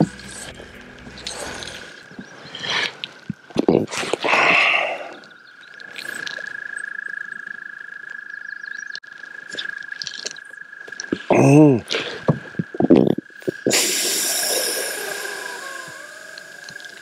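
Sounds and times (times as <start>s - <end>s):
loud rush of breath: 13.7s - 16.4s.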